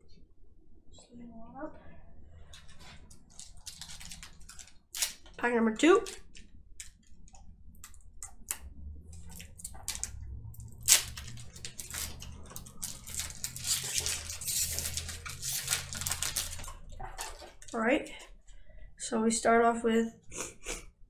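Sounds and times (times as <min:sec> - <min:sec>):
foil wrapper crinkling: 0:03.1 - 0:05.4, 0:10.8 - 0:17.8
low hum: 0:06.0 - 0:19.0.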